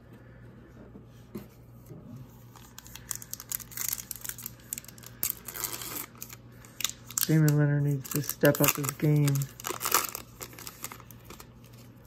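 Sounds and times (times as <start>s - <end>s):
foil wrapper crinkling and ripping: 2.5s - 12.0s.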